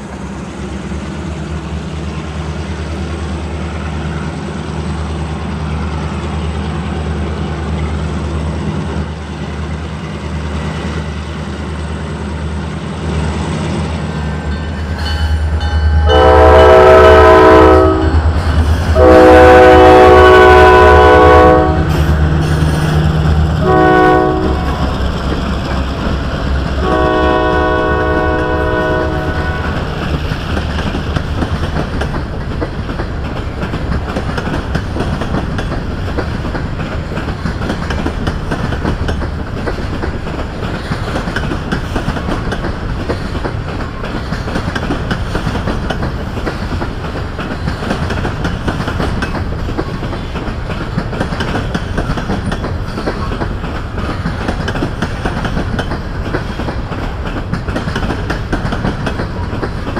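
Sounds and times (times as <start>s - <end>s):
diesel locomotive engine rumble: 0.0s - 59.9s
train air horn blasts: 15.6s - 23.0s, 23.6s - 25.0s, 26.8s - 29.9s.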